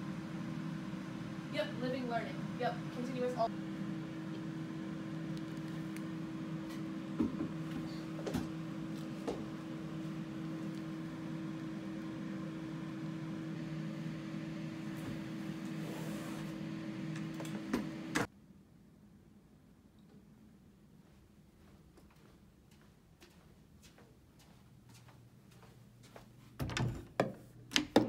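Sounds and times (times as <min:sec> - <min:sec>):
low machine hum: 0:00.0 - 0:18.3.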